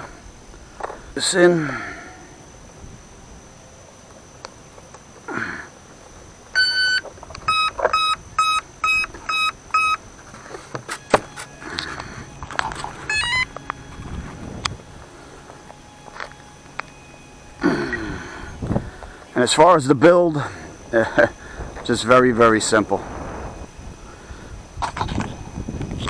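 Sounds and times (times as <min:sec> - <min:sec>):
rising run of tones: 0:05.8 - 0:26.0
handling clicks and rustles: 0:05.9 - 0:17.6
electronic start-up beeps: 0:06.6 - 0:10.0, 0:11.0 - 0:14.2.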